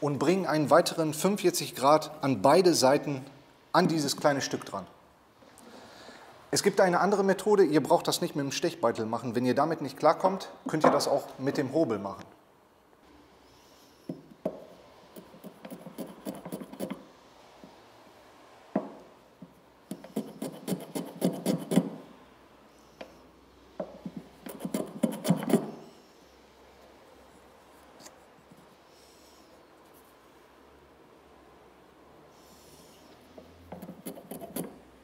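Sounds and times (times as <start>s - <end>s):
block plane shaving wood: 15.2s - 17.0s, 19.9s - 22.0s, 24.4s - 25.8s, 33.8s - 34.8s.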